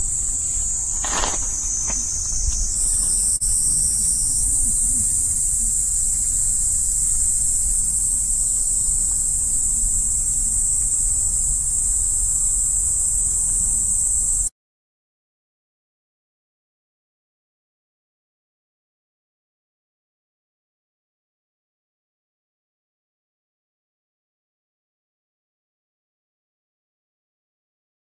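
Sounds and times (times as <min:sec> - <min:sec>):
high-pitched insect chorus: 0:00.0 - 0:14.5.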